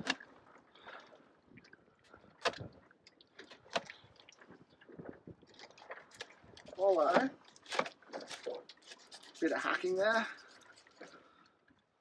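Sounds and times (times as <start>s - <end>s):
knife scraping fish bones: 7.6s - 11.2s.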